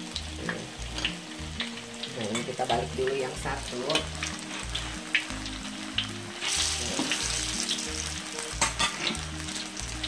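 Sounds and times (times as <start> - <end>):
hot oil sizzling: 0.0 - 10.0
soft music with pulsing bass: 0.0 - 10.0
metal spatula scraping a wok: 8.6 - 9.2.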